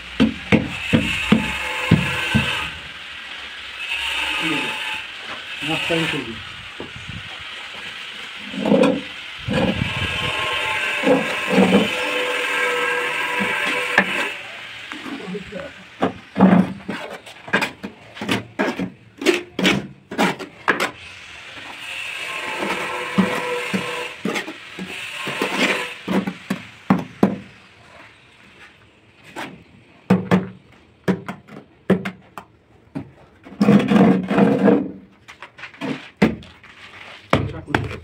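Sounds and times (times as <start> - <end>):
trowel scraping: 7.7 - 26.6, 33.2 - 38.0.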